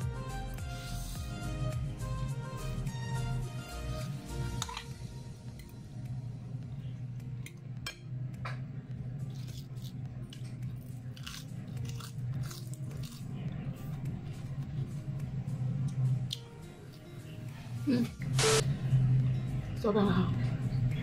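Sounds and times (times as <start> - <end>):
low steady hum: 4.0 - 21.0
person chewing: 9.2 - 14.0.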